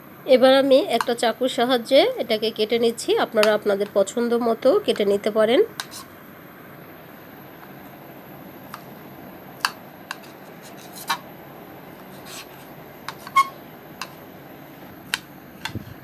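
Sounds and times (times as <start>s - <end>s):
knife clicking and scraping on plate: 5.8s - 6.1s, 9.6s - 11.2s.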